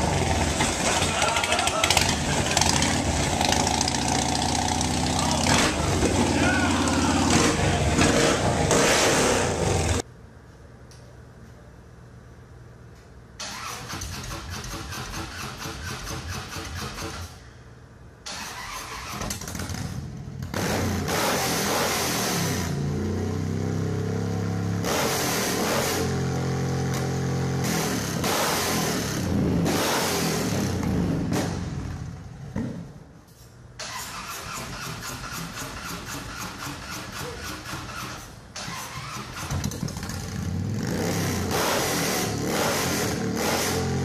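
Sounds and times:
motorcycle engine revving: 0:00.0 - 0:10.0, 0:18.4 - 0:32.2, 0:33.9 - 0:44.0.

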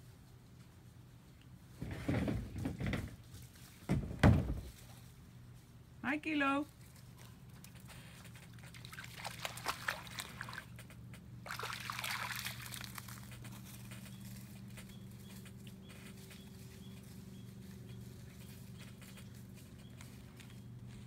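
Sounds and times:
dog paws splashing in water: 0:06.7 - 0:21.0.

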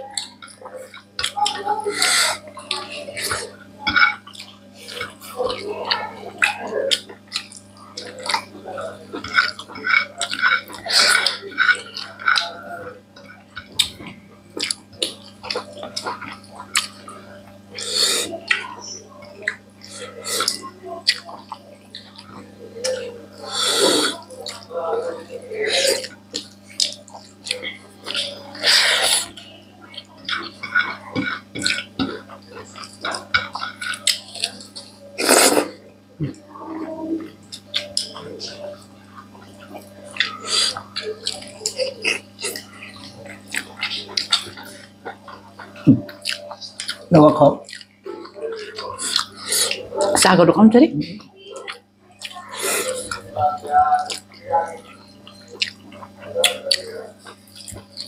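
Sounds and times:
people eating with wet chewing: 0:00.0 - 0:58.0
wet chewing and lip smacks: 0:13.2 - 0:17.2, 0:19.3 - 0:23.0, 0:37.4 - 0:47.0, 0:47.6 - 0:50.2, 0:53.8 - 0:58.0.

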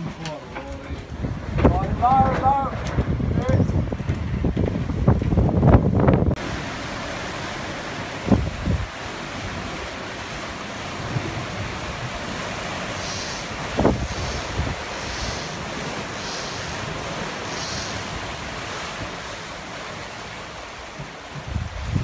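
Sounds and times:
wind buffeting microphone: 0:00.0 - 0:06.6, 0:07.2 - 0:22.0
sea water rushing: 0:05.6 - 0:22.0.

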